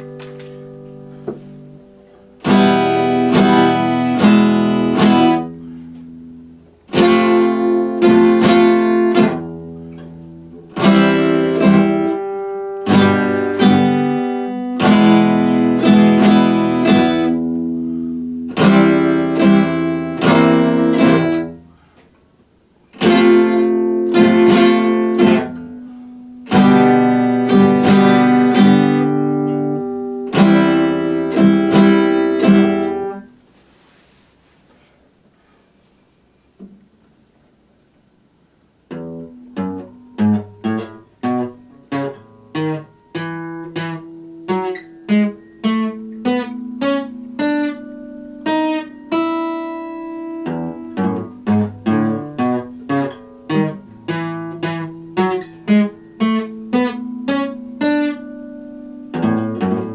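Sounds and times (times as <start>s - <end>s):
acoustic guitar strumming chords: 0.0s - 34.2s, 34.8s - 59.9s.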